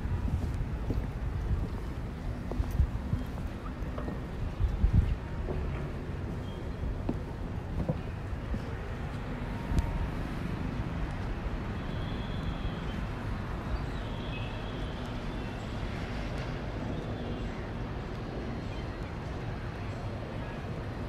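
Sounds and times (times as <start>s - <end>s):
distant city traffic: 0.0s - 21.0s.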